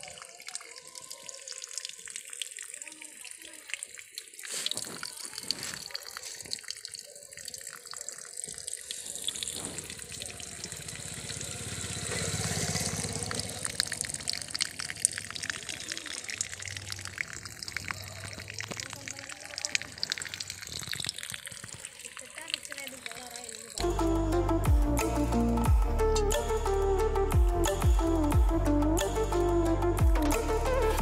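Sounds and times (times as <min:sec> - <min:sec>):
water drips and splashes: 0:00.0 - 0:23.8
water pouring into a pool: 0:00.0 - 0:23.8.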